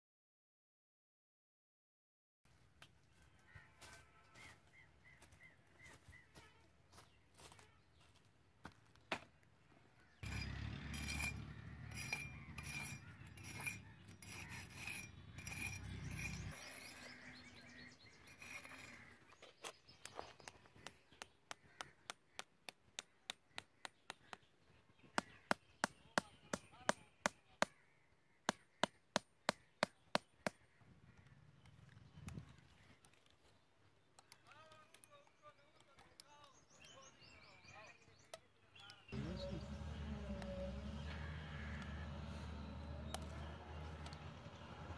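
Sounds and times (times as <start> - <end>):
rubbing and scraping: 10.2 - 19.8
wooden sticks tapping ground: 18.2 - 24.5.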